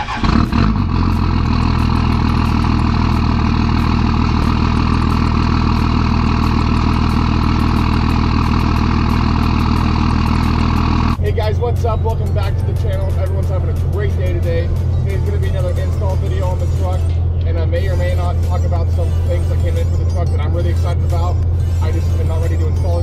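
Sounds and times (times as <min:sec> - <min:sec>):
diesel engine idling: 0:00.0 - 0:23.0.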